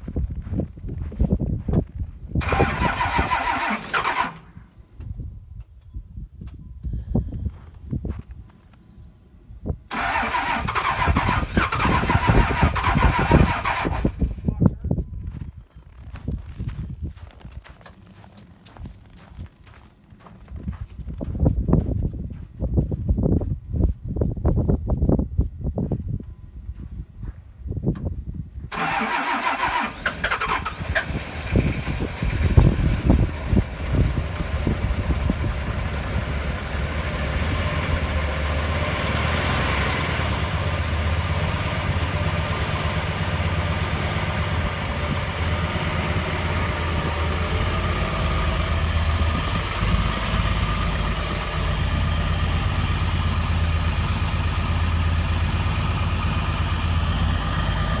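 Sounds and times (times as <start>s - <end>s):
truck engine starting and idling: 0.4s - 5.4s, 9.6s - 14.7s, 28.6s - 58.0s.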